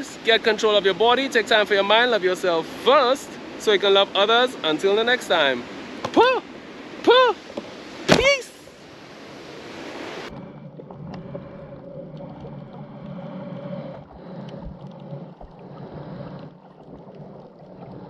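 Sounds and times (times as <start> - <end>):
faint steady hum: 0.0 - 18.0
muffled underwater rumble: 10.3 - 18.0.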